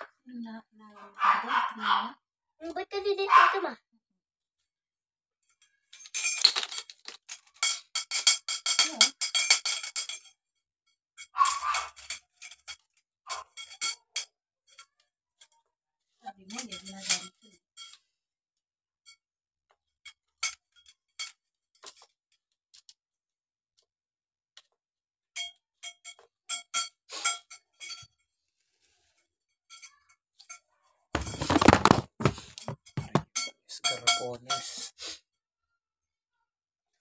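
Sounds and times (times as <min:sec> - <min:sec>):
metal rods clinking: 0:05.9 - 0:10.4, 0:11.2 - 0:15.0
rattling and scraping: 0:31.2 - 0:33.5.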